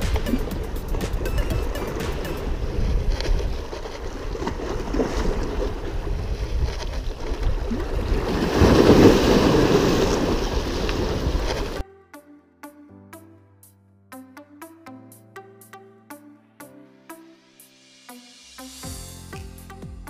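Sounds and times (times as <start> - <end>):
water sounds: 0.0 - 11.8
wind buffeting microphone: 2.4 - 11.8.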